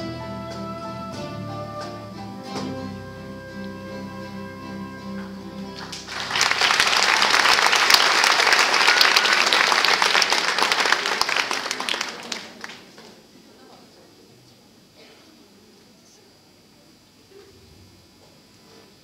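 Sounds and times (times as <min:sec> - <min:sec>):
guitar ensemble chord: 0:00.0 - 0:09.6
audience applauding: 0:05.2 - 0:13.2.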